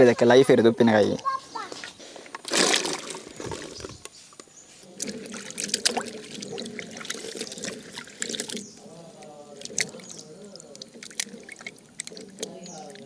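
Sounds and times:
water splashing in a steel pot: 2.4 - 3.6, 4.9 - 8.7
small clicks and drips: 5.0 - 13.0.

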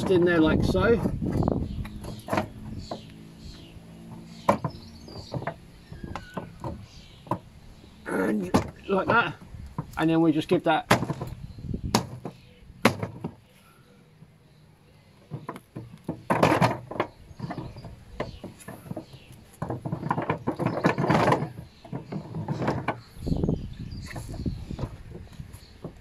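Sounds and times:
metal and plastic rattling: 0.0 - 3.1, 4.0 - 7.5, 10.8 - 13.4, 15.3 - 23.3
sharp metal knocks: 0.0 - 3.1, 4.1 - 7.5, 10.8 - 13.4.

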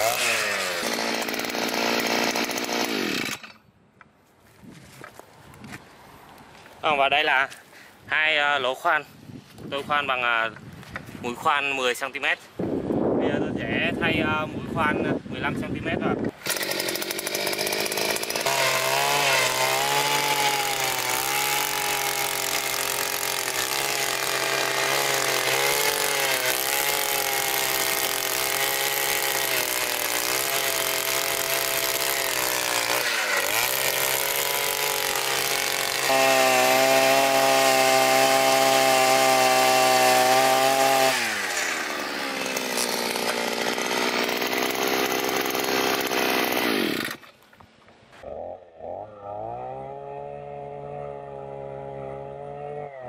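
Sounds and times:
earth auger engine boring ground: 0.0 - 3.7, 16.2 - 53.0.

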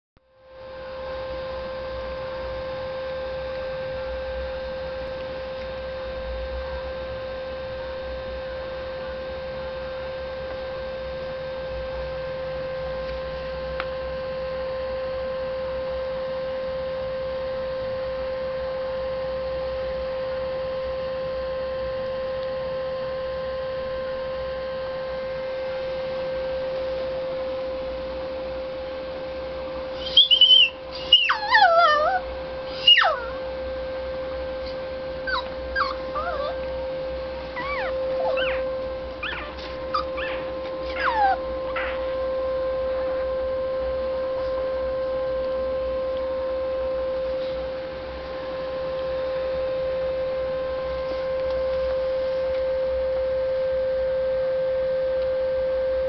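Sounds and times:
steady hum with overtones: 0.2 - 56.0.

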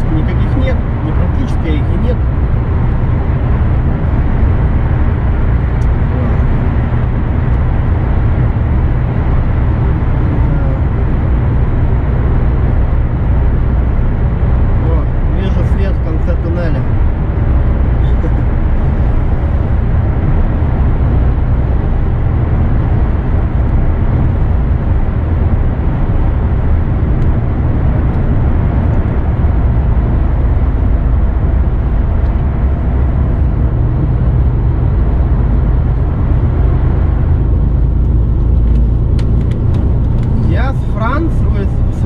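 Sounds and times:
truck engine droning: 0.0 - 42.0.

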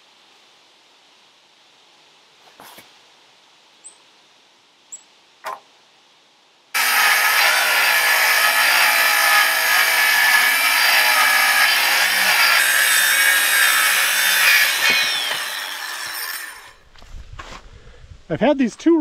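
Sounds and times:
circular saw cutting wood: 6.8 - 16.8
saw blade winding down: 6.8 - 16.8.

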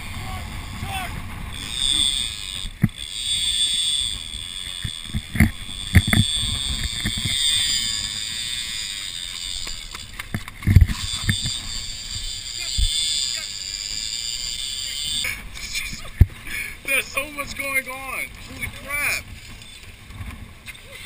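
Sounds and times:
fishing reel drag screaming: 0.1 - 19.9
sharp thumps and knocks: 4.8 - 7.4, 9.6 - 11.6.

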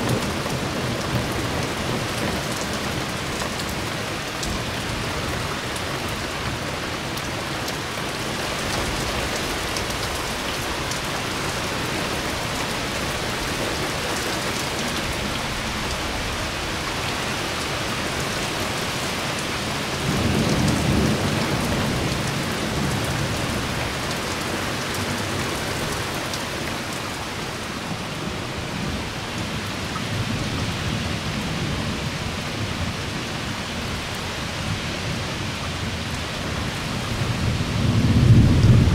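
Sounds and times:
heavy rain falling: 0.0 - 38.9
thunder rumble: 37.0 - 38.9.

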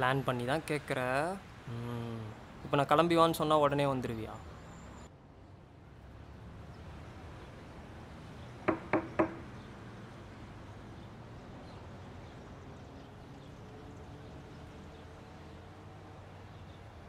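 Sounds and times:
sharp hollow knocks: 8.6 - 9.5.

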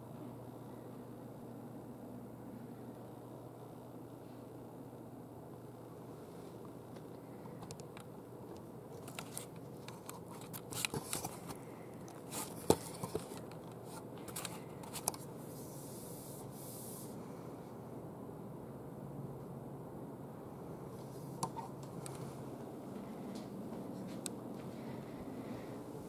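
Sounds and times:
soft hissing rustle: 10.2 - 17.4.

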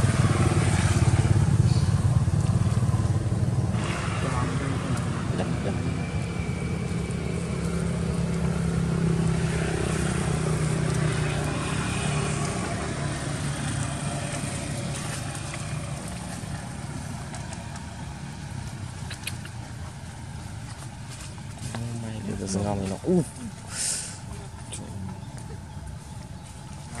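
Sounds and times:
motorbike engine passing by: 0.0 - 18.4.

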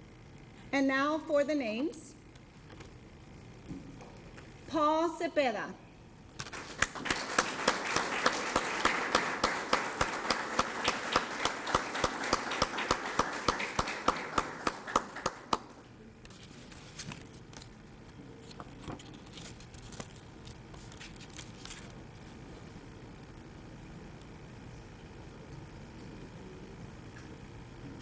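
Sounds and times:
loud clapper keeping a beat: 6.4 - 15.8
audience applauding: 6.5 - 15.8.

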